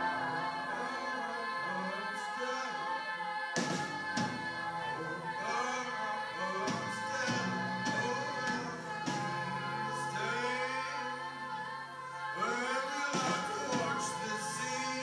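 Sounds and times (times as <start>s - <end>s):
sustained instrumental chords: 0.0s - 5.4s
women singing in harmony: 0.0s - 15.0s.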